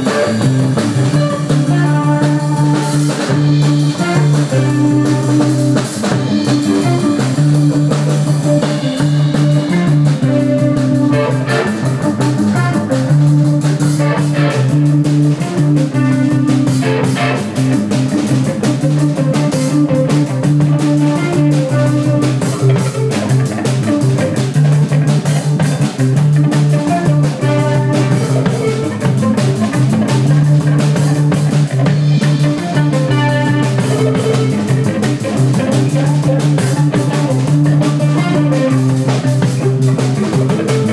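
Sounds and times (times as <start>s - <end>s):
rock band playing live: 0.0s - 40.9s.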